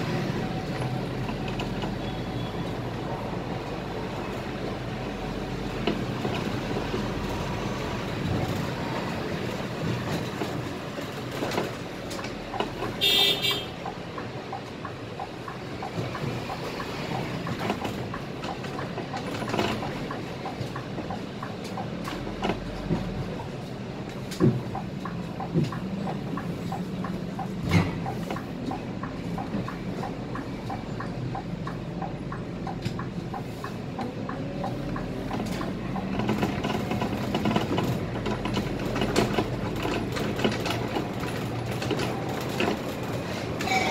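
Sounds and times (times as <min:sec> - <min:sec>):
bus engine and road noise: 0:00.0 - 0:43.9.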